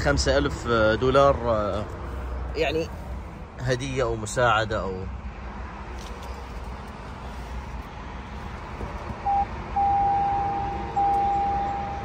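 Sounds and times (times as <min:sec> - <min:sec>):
high electronic warning chime: 0:09.3 - 0:12.0.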